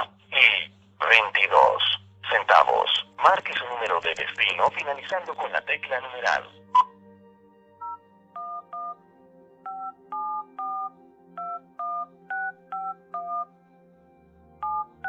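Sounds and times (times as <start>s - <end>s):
telephone keypad tones: 7.8s - 9.0s, 9.7s - 13.5s, 14.6s - 15.0s.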